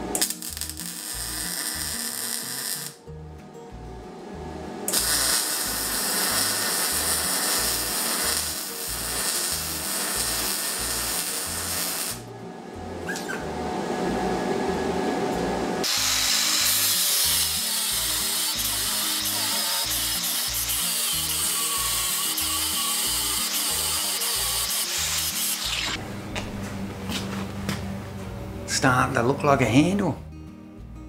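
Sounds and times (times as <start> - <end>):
welder arc crackling on steel: 0.0 - 3.0, 4.9 - 12.3, 15.8 - 26.0
angle grinder grinding steel: 15.9 - 26.0.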